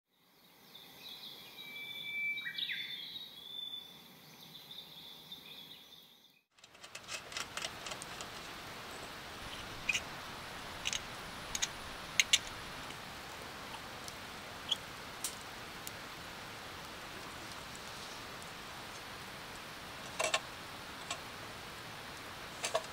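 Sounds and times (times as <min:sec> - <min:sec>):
metal clicks of oil lantern: 0:06.6 - 0:08.6, 0:09.4 - 0:13.0, 0:20.0 - 0:21.3, 0:22.6 - 0:22.9
steady low hiss: 0:06.6 - 0:22.9.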